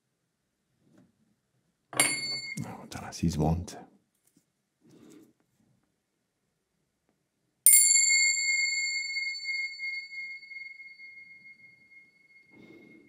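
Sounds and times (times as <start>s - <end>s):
small cymbals ringing: 2.0s - 2.7s, 7.7s - 13.0s.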